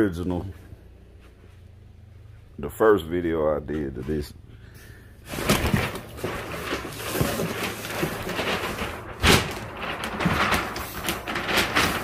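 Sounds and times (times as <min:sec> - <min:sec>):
rustling and scraping of handling: 0:05.2 - 0:12.0.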